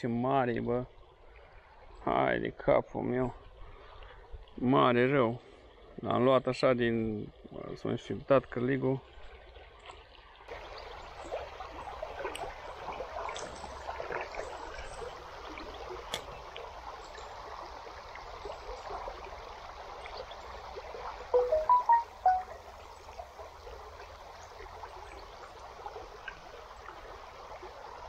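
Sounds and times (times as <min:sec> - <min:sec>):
river water running: 0:09.0 - 0:28.0.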